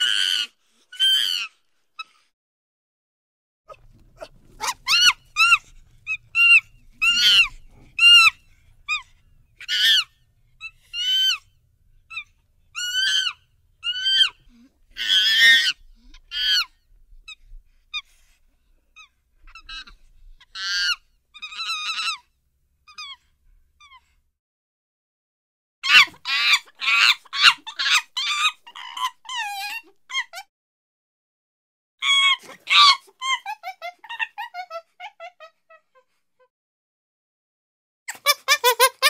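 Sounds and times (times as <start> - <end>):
chimpanzee harsh scream: 0.0 - 2.2, 3.7 - 9.0, 9.6 - 11.4, 12.1 - 16.7, 20.5 - 22.2, 25.8 - 30.4, 32.0 - 35.4
chimpanzee calls: 3.7 - 11.5, 12.1 - 16.7, 25.8 - 30.4, 32.0 - 35.6.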